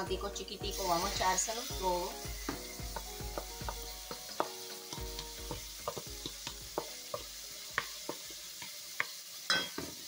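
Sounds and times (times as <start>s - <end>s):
onions sizzling in oil: 0.0s - 10.0s
tomatoes knocking into metal pot: 2.4s - 8.3s.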